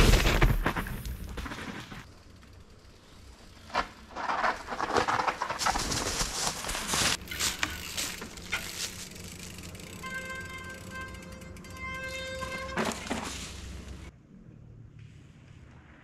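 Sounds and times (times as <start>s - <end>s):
bike tyres crunching on dirt and rock: 0.0s - 14.1s.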